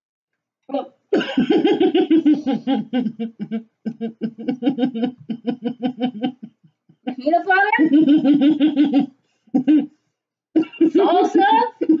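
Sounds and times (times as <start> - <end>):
woman laughing hard: 1.2 - 6.5, 7.8 - 9.9, 10.6 - 12.0.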